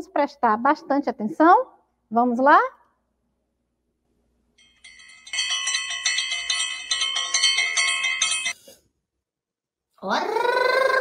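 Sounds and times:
bell-like chime jingle: 0:04.6 - 0:08.7.

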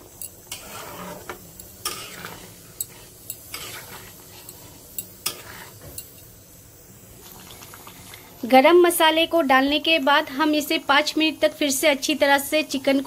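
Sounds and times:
simmering gravy hiss: 0:00.0 - 0:13.0
metal ladle stirring curry: 0:00.2 - 0:05.8.

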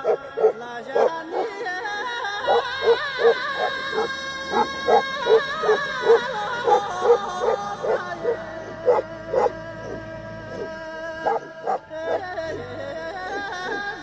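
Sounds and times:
dog barking deeply: 0:00.0 - 0:01.6, 0:02.4 - 0:13.9
background music: 0:00.0 - 0:14.0.

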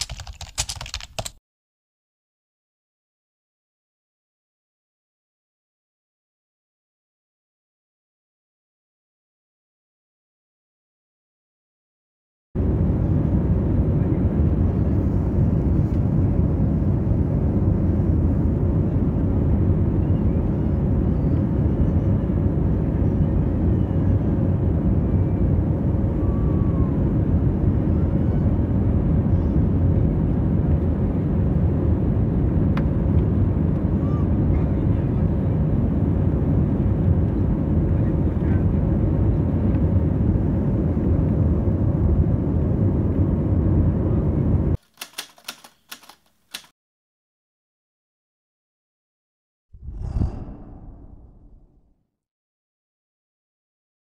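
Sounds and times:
low rumble of engines and airflow: 0:12.6 - 0:46.7.

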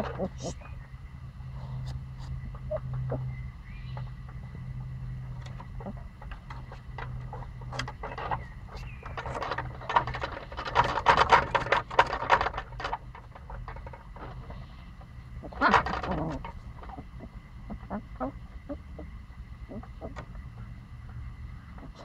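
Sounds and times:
steady low hum: 0:00.0 - 0:22.0
puppies scratching at wooden fence: 0:01.6 - 0:18.3.

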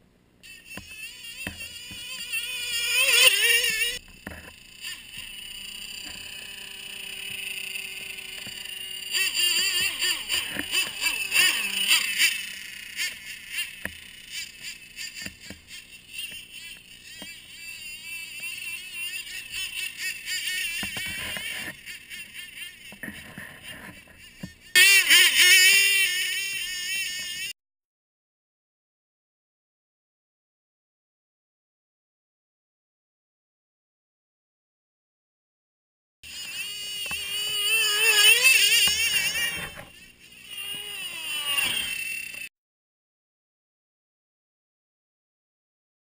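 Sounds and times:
small motor whining: 0:00.4 - 0:27.6, 0:36.2 - 0:42.5.

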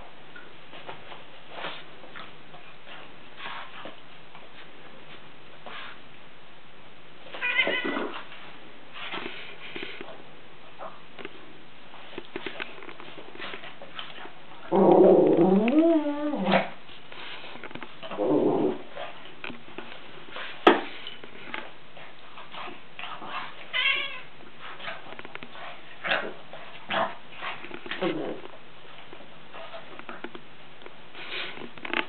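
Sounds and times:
small knocks and rustles: 0:11.2 - 0:14.4, 0:16.7 - 0:18.2, 0:24.4 - 0:32.0.

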